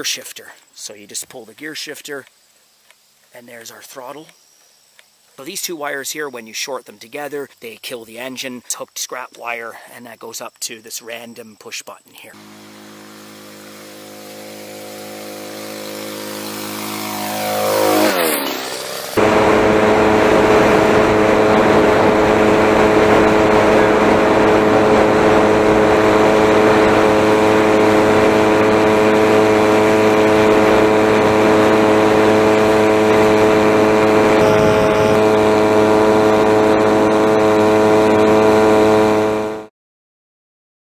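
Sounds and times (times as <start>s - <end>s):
small two-stroke engine revving high: 12.4s - 39.7s.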